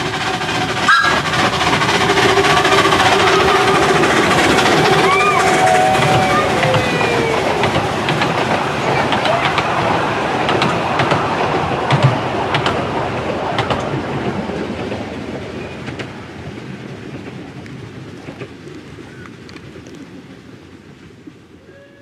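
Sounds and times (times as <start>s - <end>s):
train wheels clicking over rail joints: 0.0s - 19.8s.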